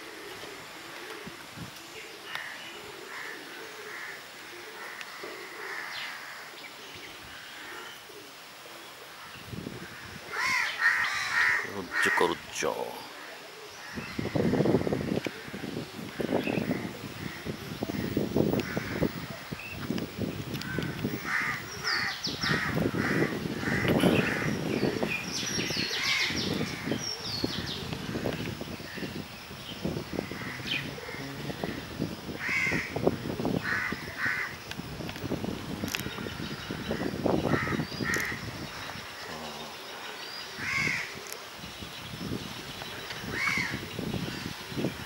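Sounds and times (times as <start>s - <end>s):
dove cooing: 0.0s - 9.3s, 29.8s - 34.6s
small birds chirping: 1.4s - 45.0s
crow cawing: 2.4s - 6.5s, 9.9s - 12.4s, 20.6s - 24.6s, 32.4s - 33.0s, 33.6s - 34.6s, 36.7s - 38.4s, 40.6s - 41.2s.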